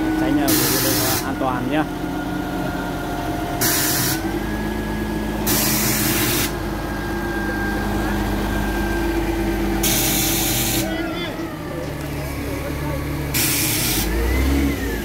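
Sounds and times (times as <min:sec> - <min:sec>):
diesel engine running: 0:00.0 - 0:15.0
air hissing: 0:00.5 - 0:01.2, 0:03.6 - 0:04.3, 0:05.4 - 0:06.6, 0:09.8 - 0:10.9, 0:13.3 - 0:14.1.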